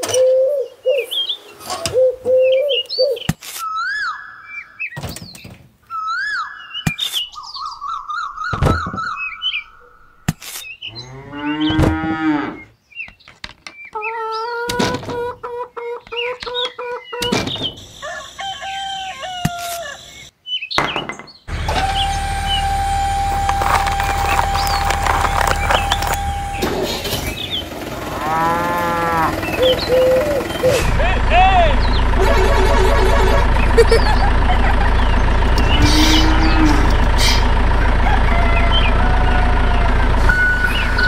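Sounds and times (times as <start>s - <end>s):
chirping calls: 0.0s - 30.9s, 31.7s - 41.0s
small motor humming: 21.5s - 30.7s.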